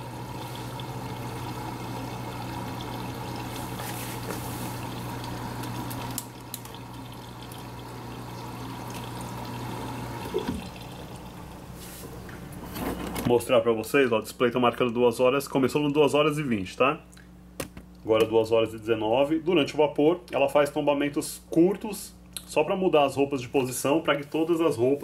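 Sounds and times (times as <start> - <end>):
water running into washer: 0.0 - 11.8.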